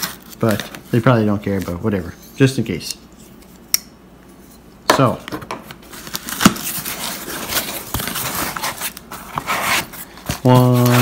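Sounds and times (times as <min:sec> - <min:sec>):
cardboard flaps rustling: 0:05.9 - 0:11.0
scraping on cardboard: 0:07.2 - 0:11.0.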